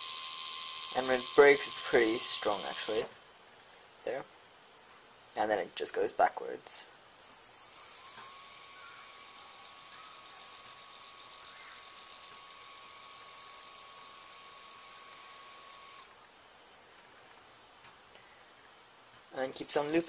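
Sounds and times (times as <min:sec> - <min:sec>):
electric motor whine: 0:00.0 - 0:03.2, 0:07.2 - 0:16.1.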